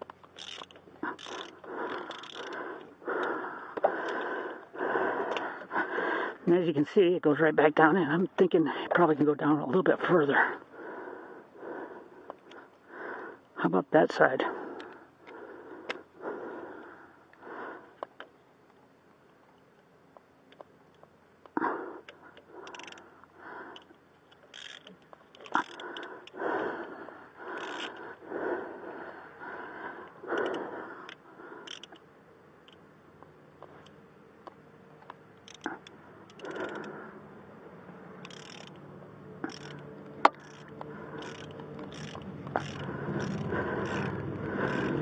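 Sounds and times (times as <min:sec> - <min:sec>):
ratchet clicking: 0:00.0 - 0:02.6, 0:22.6 - 0:23.0, 0:23.7 - 0:26.4, 0:27.6 - 0:28.0, 0:30.4 - 0:32.0, 0:35.4 - 0:37.0, 0:38.2 - 0:45.0
heavy breathing: 0:00.4 - 0:06.5, 0:10.3 - 0:13.6, 0:14.4 - 0:18.3, 0:21.5 - 0:32.1, 0:35.4 - 0:38.8, 0:39.4 - 0:45.0.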